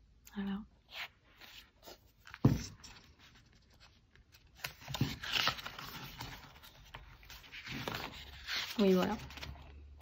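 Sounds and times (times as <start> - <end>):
pages rustling: 1.4 - 10.0
book thump: 2.3 - 2.9.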